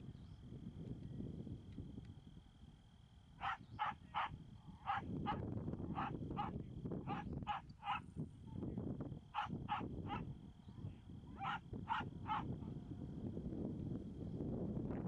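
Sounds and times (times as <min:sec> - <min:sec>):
dog barking: 0:03.4 - 0:08.0, 0:09.3 - 0:10.3, 0:11.4 - 0:12.5.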